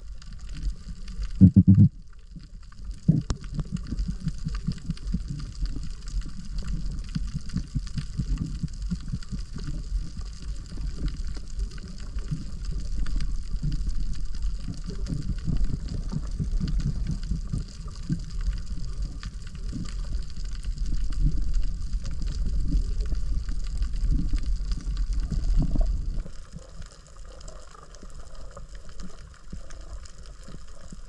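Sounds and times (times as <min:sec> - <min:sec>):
heavy low rumble: 0:01.3 - 0:02.0
sea water sloshing and gurgling: 0:02.1 - 0:31.0.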